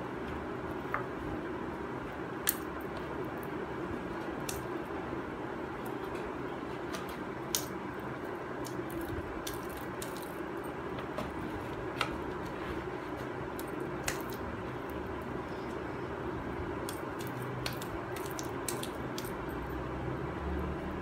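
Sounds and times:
hands squishing wet clay paste: 13.5s - 15.0s, 16.8s - 19.4s.

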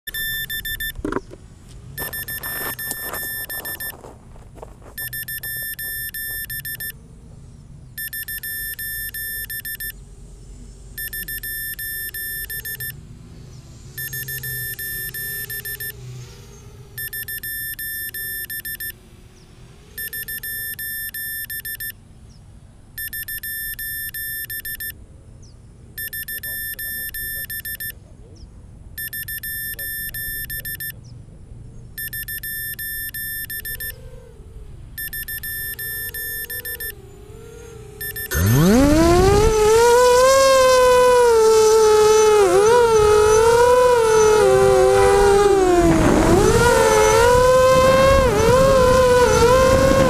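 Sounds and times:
electronic beeper beeping: 0.1s - 1.2s, 2.0s - 4.1s, 5.0s - 7.0s, 8.0s - 10.0s, 11.0s - 13.0s, 14.0s - 16.0s, 17.0s - 19.0s, 20.0s - 22.0s, 23.0s - 25.0s, 26.0s - 28.0s, 29.0s - 31.0s, 32.0s - 34.0s, 35.0s - 37.0s, 38.0s - 45.7s
faint wavering hum: 0.1s - 50.0s.

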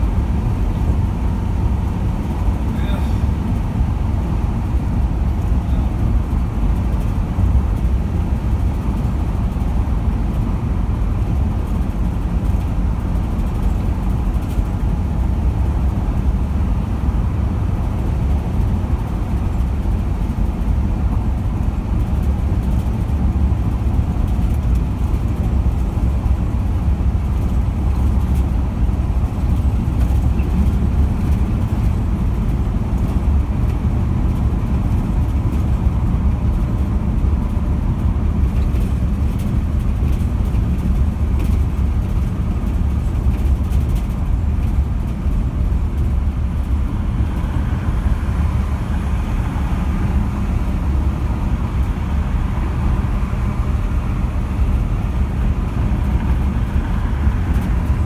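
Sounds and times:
car road and engine noise: 0.0s - 58.0s.

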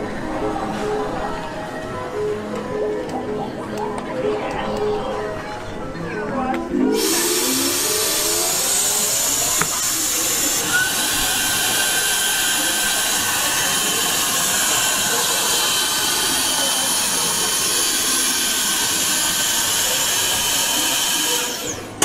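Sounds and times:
suction pump hissing: 6.9s - 22.0s.

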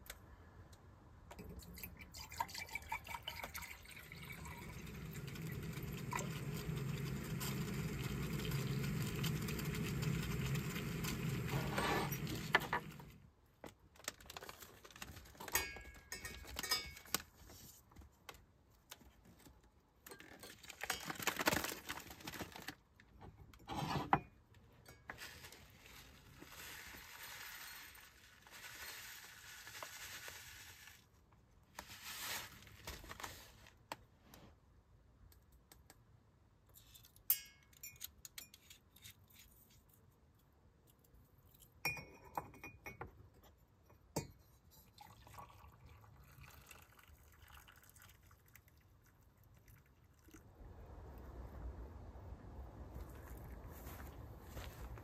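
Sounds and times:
paper bag rustling: 14.0s - 15.5s, 20.6s - 22.8s, 25.2s - 31.1s, 31.7s - 33.8s
metal spoon clinking on mug: 15.5s - 17.1s, 37.3s - 38.7s, 41.8s - 43.0s.

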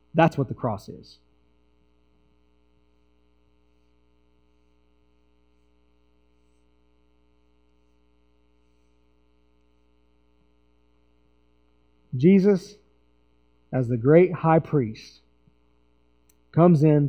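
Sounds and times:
low mains hum: 0.0s - 17.0s
marker drawing on whiteboard: 3.7s - 6.9s, 7.7s - 9.8s.

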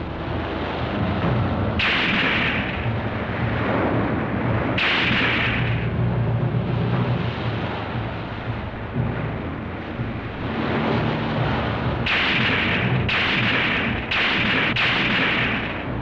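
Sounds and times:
waves washing onto beach: 0.0s - 16.0s
loud hissing bursts: 1.8s - 3.1s, 4.8s - 5.9s.

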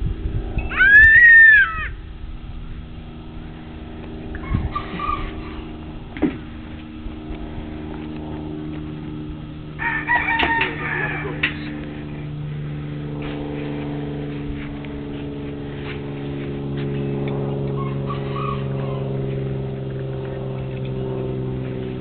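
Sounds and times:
steady low hum: 0.0s - 22.0s
rooster crowing: 0.7s - 2.0s, 9.8s - 11.8s, 17.8s - 19.1s.

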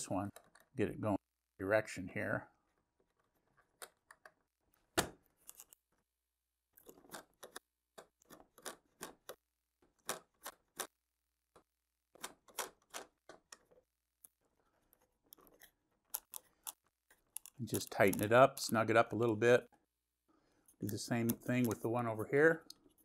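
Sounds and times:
thumb screw clicking and scraping: 5.3s - 5.9s, 6.7s - 19.2s, 20.5s - 21.9s.

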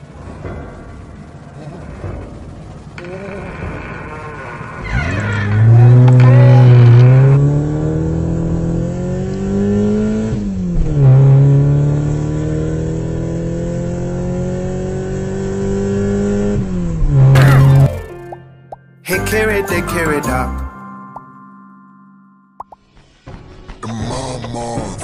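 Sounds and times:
bus engine accelerating: 1.3s - 20.8s.

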